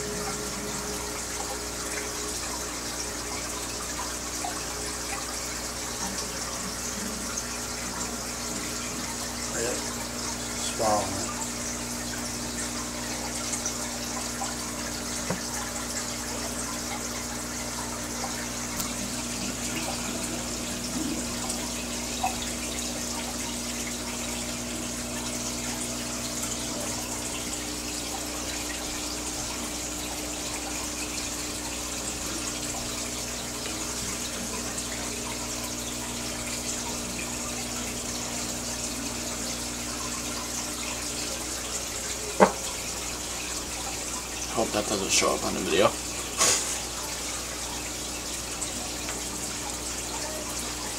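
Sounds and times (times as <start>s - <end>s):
low motor hum: 0.0s - 30.1s
water trickling and bubbling: 0.0s - 50.9s.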